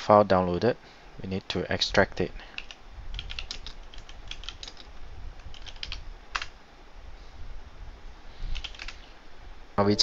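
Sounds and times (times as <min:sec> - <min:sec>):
typing on computer keyboard: 0:02.5 - 0:06.5, 0:08.5 - 0:09.0.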